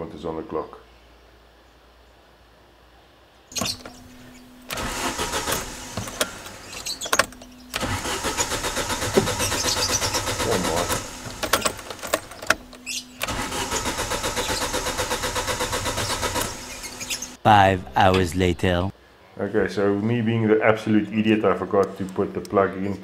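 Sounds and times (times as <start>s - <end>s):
starter motor cranking engine: 3.6s - 17.4s.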